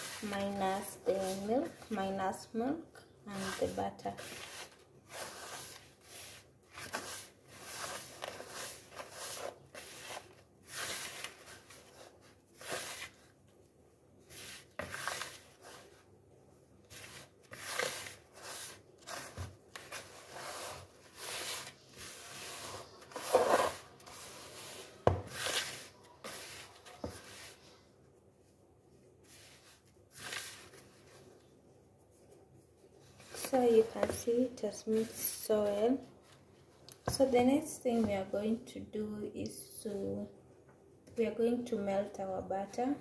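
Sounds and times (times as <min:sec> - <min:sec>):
hand rubbing dough in bowl: 0:00.0 - 0:02.6, 0:03.3 - 0:13.3, 0:16.9 - 0:27.8, 0:29.2 - 0:36.2.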